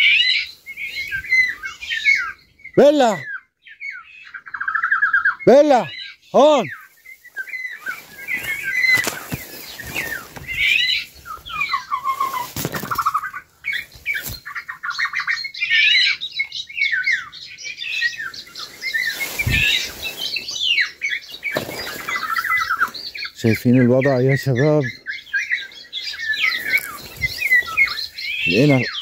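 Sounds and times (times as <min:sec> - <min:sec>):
foliage rustling: 0:00.0 - 0:02.3, 0:06.4 - 0:15.1, 0:17.9 - 0:29.0
birds chirping and trilling: 0:00.0 - 0:29.0.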